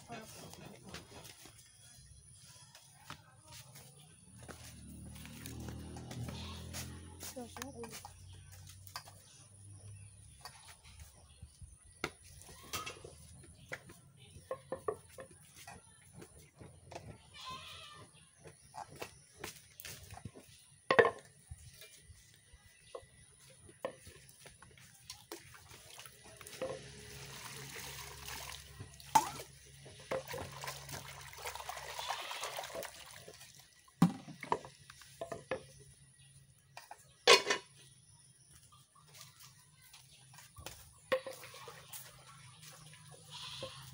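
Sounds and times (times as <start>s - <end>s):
water running and splashing: 24.2s - 35.2s, 39.0s - 43.9s.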